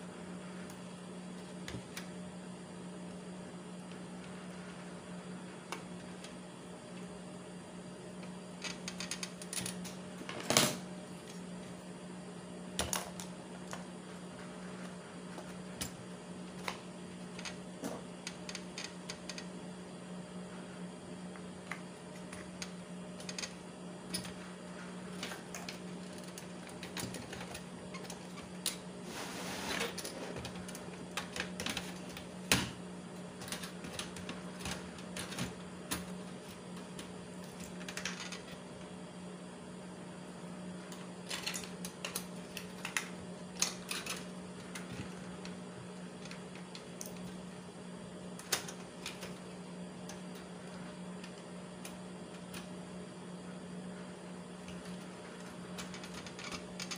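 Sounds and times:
steady low hum: 0.0s - 56.9s
scraping rustle: 29.0s - 30.0s.

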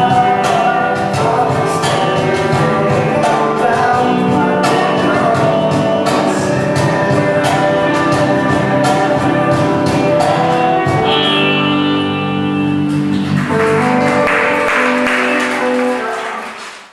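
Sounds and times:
live acoustic music: 0.0s - 16.9s
high note sliding down: 11.0s - 13.2s.

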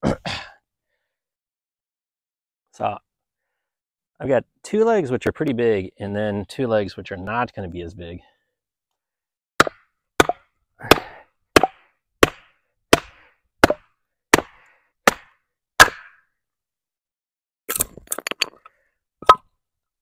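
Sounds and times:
wooden mallet striking log: 9.6s - 16.2s.

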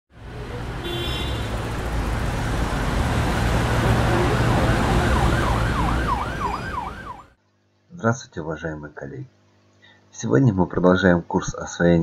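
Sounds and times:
street traffic rumble: 0.1s - 7.3s
siren wailing: 2.7s - 7.4s.

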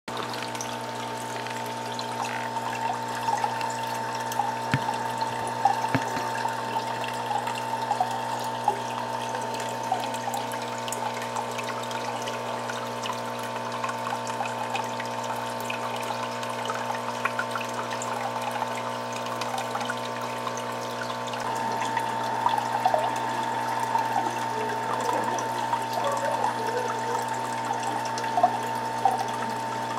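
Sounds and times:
bubbles ticking: 0.1s - 29.9s
water flowing and trickling: 0.1s - 29.9s
steady machine hum: 21.4s - 29.9s.

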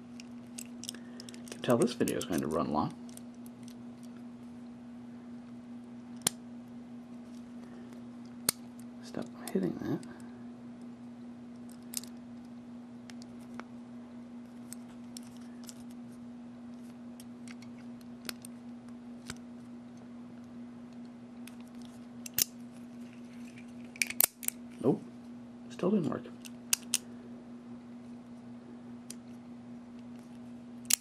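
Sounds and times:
steady low hum: 0.0s - 31.0s
padlock metallic clicks: 22.2s - 22.5s, 26.4s - 27.0s.

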